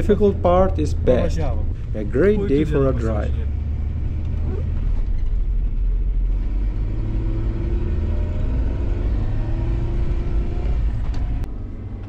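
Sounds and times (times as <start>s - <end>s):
car engine low rumble: 0.0s - 12.0s.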